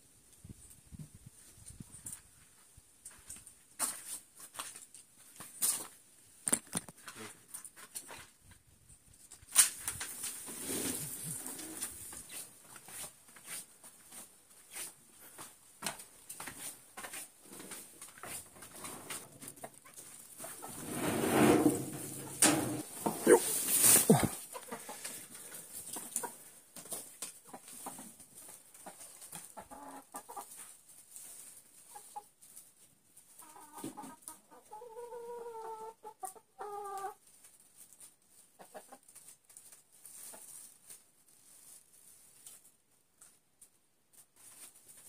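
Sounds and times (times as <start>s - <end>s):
hens clucking: 19.1s - 26.4s, 27.5s - 30.7s, 33.4s - 37.2s
loud rustling clatter: 20.5s - 24.2s.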